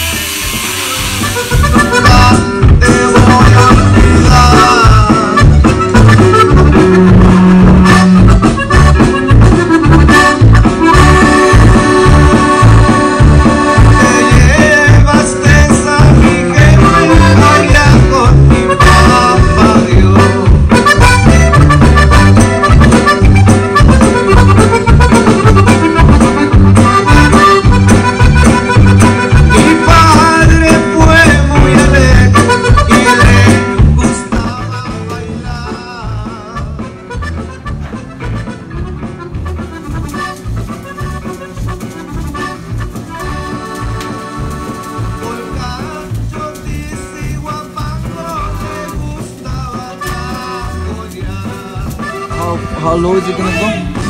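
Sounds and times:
accordion: 0.0s - 54.0s
bass beat: 0.0s - 54.0s.

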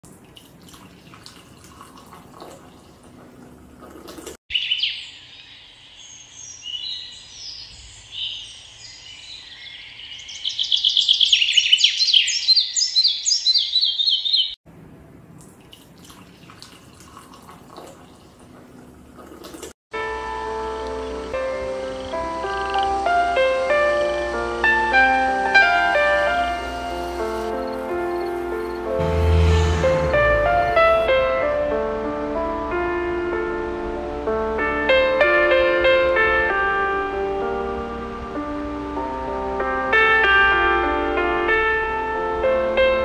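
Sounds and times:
liquid being poured: 0.0s - 4.4s, 15.4s - 19.8s
birds singing: 4.5s - 14.6s.

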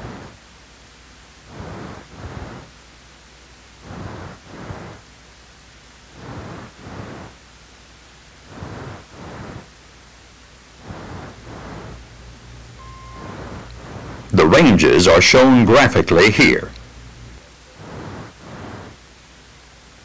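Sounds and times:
steady low hum: 0.0s - 20.0s
soft swishing: 10.8s - 14.3s.

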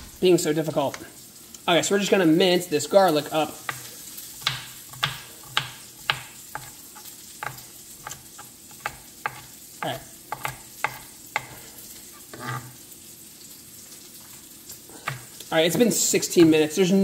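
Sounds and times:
vegetables sizzling in a pan: 0.0s - 17.0s
knife chopping on cutting board: 3.6s - 11.6s, 15.0s - 16.6s.

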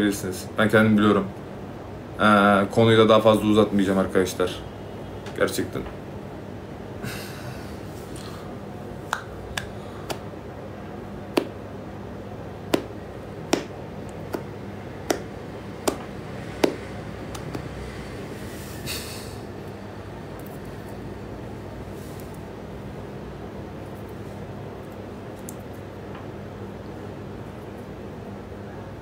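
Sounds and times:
steady low hum: 0.0s - 29.0s
sharp taps: 12.7s - 12.9s, 13.5s - 13.7s, 14.3s - 14.5s, 15.1s - 17.7s.

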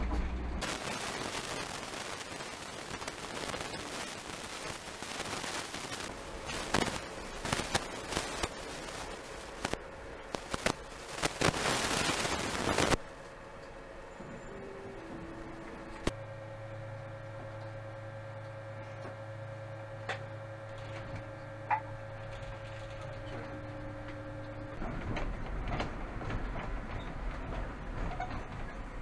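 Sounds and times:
electrical hum: 0.0s - 28.0s
tram rumbling on rails: 12.7s - 16.2s, 23.0s - 29.0s.

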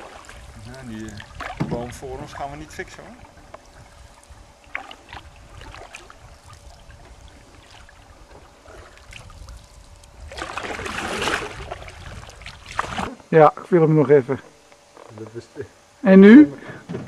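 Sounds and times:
paddle knocks and splashes: 1.2s - 2.4s, 10.3s - 13.2s.

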